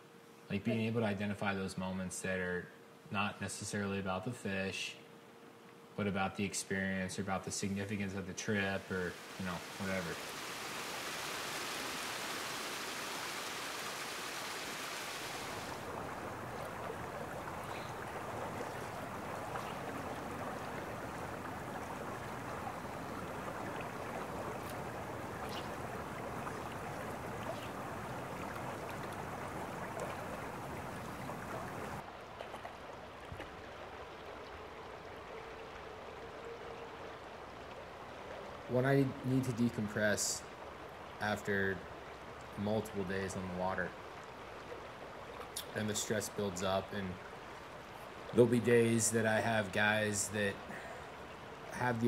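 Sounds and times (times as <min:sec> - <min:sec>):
stream splashing over stones: 0:09.0 - 0:35.1.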